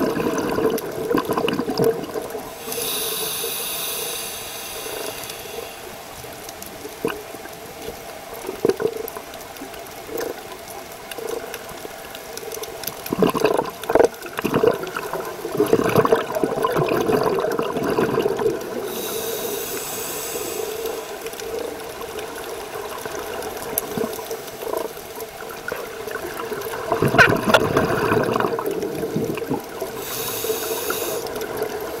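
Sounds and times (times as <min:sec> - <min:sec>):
bubbling exhaust: 0:00.0 - 0:05.8, 0:13.0 - 0:32.0
steady hiss of water: 0:00.0 - 0:32.0
hissing regulator inhale: 0:02.5 - 0:06.1, 0:18.8 - 0:21.6, 0:29.9 - 0:32.0.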